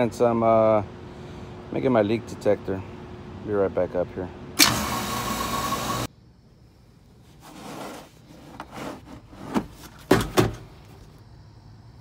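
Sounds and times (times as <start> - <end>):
refrigeration unit running: 0.0 - 6.1
plastic tool cases knocking: 9.5 - 10.7.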